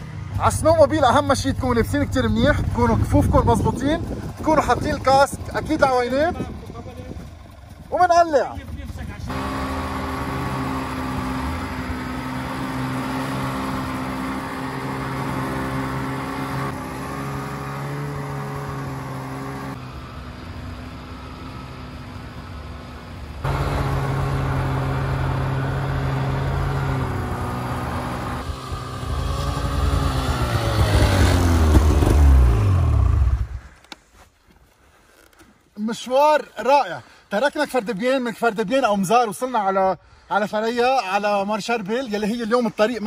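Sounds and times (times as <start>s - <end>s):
snowmobile engine running: 0.0s - 33.6s.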